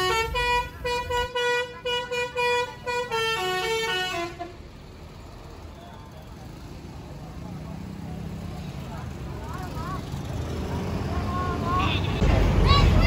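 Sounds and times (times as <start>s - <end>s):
bus horn playing a tune: 0.0s - 4.6s
engine and road noise: 0.0s - 13.0s.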